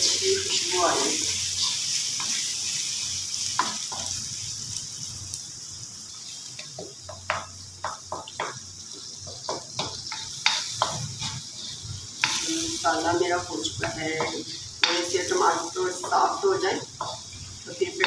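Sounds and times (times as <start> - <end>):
wooden spoon scraping a pan: 0.0 - 2.5, 9.3 - 18.0
masala sizzling in oil: 0.0 - 18.0.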